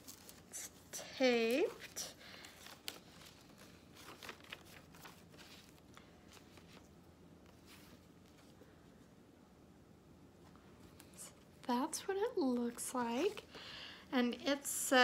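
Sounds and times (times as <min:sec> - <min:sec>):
paper rustling and crinkling: 0:00.0 - 0:08.8.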